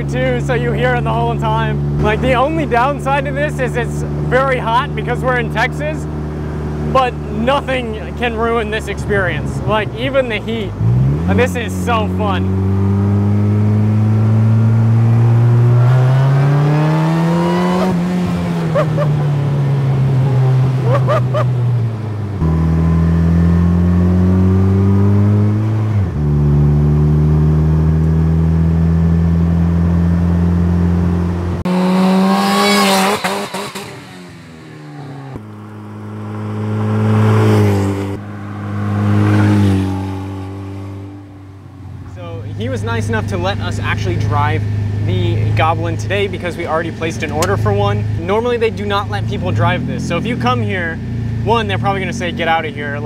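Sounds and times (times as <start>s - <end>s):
car engine accelerating: 0.0s - 53.0s
car driving by: 30.9s - 48.2s.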